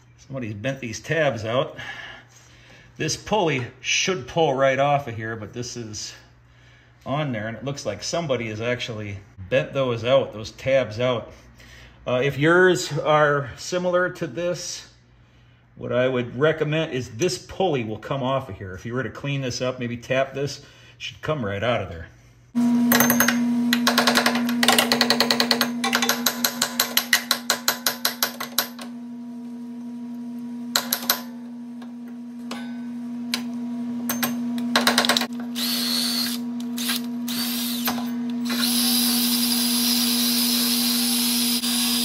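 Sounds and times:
drill spinning wire brush on steel: 22.9 - 42.0
steady low hum: 28.8 - 39.2.

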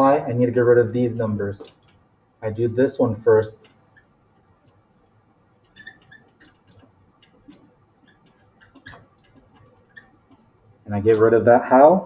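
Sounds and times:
marker writing on whiteboard: 1.0 - 2.1, 3.5 - 5.0, 5.6 - 11.4.

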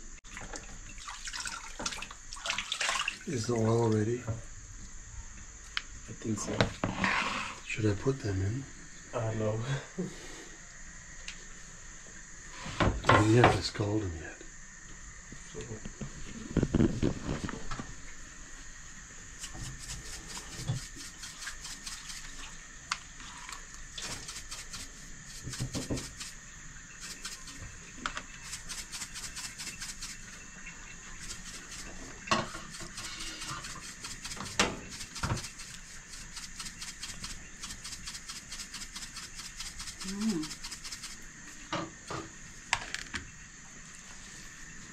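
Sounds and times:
faint high hiss: 17.4 - 42.7
metal shaker rattling: 19.4 - 22.4, 24.0 - 26.4, 27.0 - 27.6, 28.4 - 30.4, 31.1 - 41.3.

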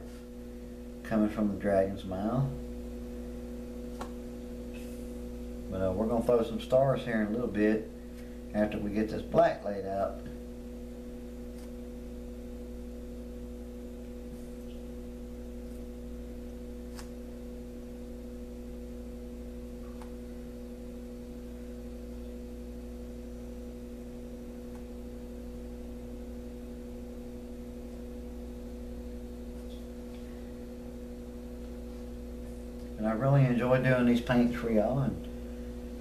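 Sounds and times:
electrical hum: 0.0 - 36.0.

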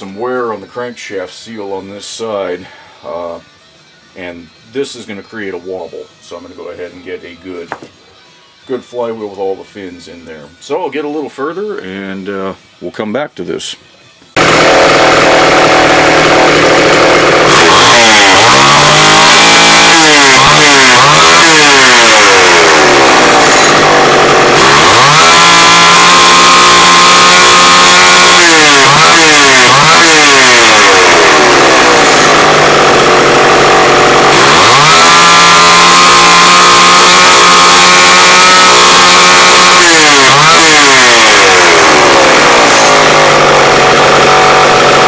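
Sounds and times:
chainsaw engine revving: 14.4 - 45.0.

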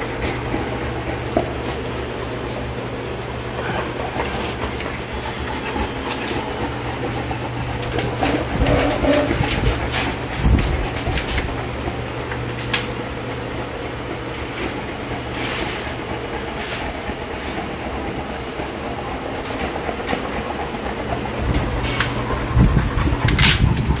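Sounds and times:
mechanical hum: 0.0 - 24.0.

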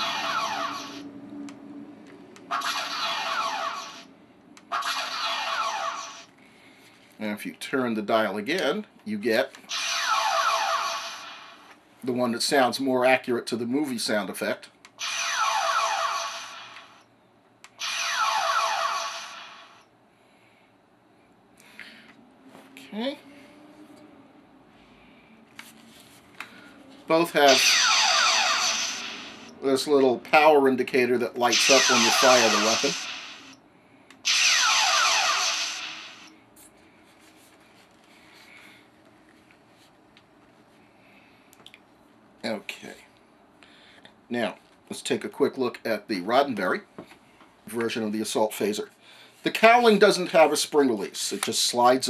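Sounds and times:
toy phaser zap: 0.0 - 1.1, 2.5 - 4.1, 4.7 - 6.3, 9.7 - 11.7, 15.0 - 17.0, 17.8 - 19.8, 27.4 - 29.6, 31.4 - 33.6, 34.2 - 36.3.

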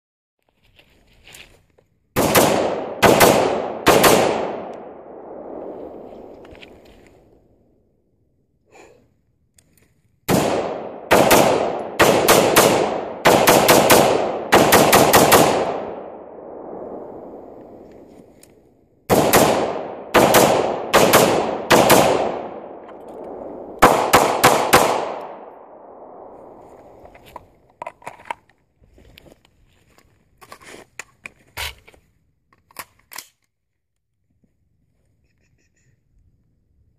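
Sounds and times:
rifle shots echoing: 2.2 - 6.5, 10.3 - 17.8, 19.1 - 27.0.

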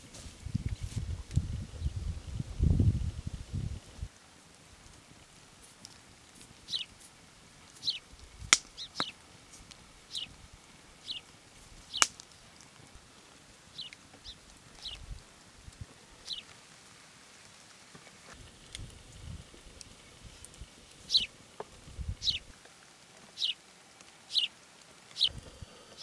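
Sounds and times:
small birds chirping: 6.4 - 10.4, 11.0 - 16.6, 19.7 - 22.5, 23.3 - 25.4.

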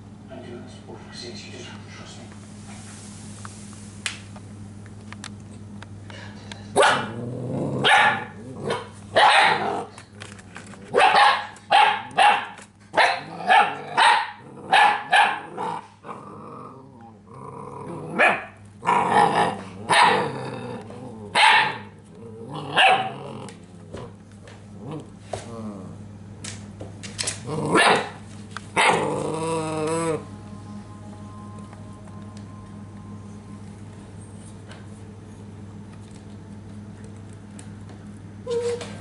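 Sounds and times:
puppy barking: 6.8 - 7.2, 7.8 - 9.9, 10.9 - 15.6, 18.2 - 18.6, 19.9 - 20.3, 21.4 - 21.9, 22.8 - 23.2, 27.7 - 28.2, 28.8 - 29.1.

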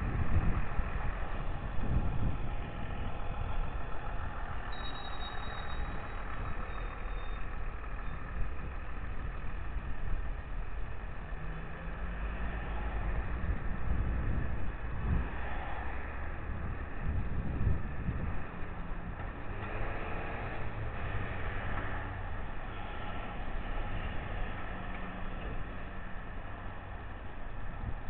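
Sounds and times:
vehicle engines rumbling: 0.0 - 28.0
faint high whine: 4.7 - 7.4.

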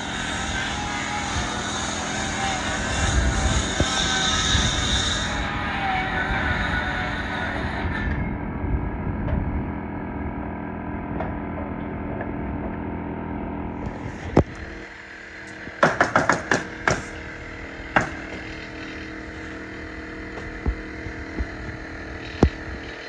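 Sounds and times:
machine hum: 0.0 - 23.0
nail gun strikes: 15.8 - 17.1.

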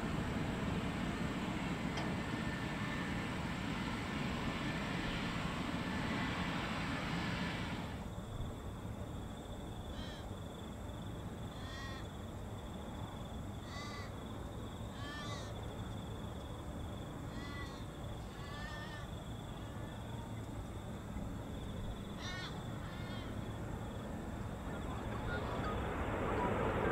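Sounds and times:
steady low rumble: 0.0 - 9.5, 20.4 - 26.9
crow cawing: 10.0 - 10.3, 13.6 - 14.1, 15.0 - 15.5, 22.2 - 23.4.

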